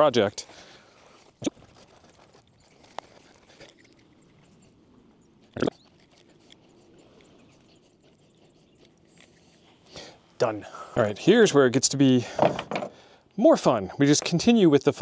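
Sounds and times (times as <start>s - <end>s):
wire rustling and crinkling: 0.0s - 4.6s.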